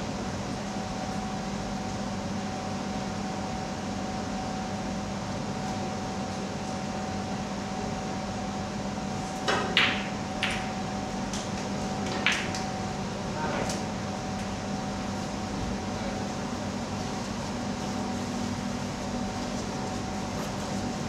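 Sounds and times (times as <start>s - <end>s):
steady background hum: 0.0s - 21.0s
snooker balls clacking: 9.5s - 10.7s, 12.1s - 12.6s
cue striking ball: 9.5s - 10.8s, 12.1s - 12.6s.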